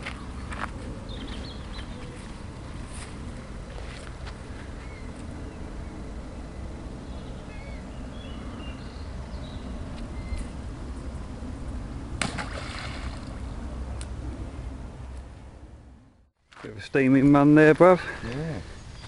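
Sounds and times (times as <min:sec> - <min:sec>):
small birds chirping: 0:00.0 - 0:02.5, 0:03.7 - 0:10.6, 0:18.2 - 0:19.0
wind rumbling on microphone: 0:00.0 - 0:16.2.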